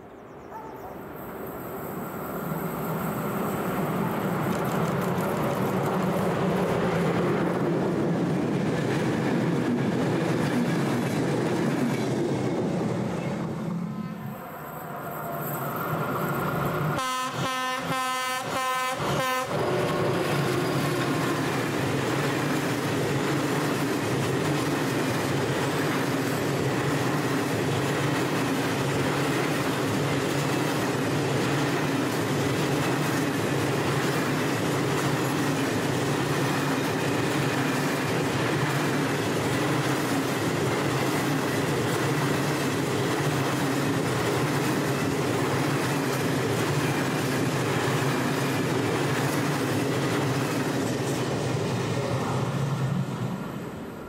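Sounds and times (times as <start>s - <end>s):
train wheels clattering on rails: 3.5s - 13.6s, 19.0s - 52.6s
locomotive horn blasts: 17.0s - 19.6s.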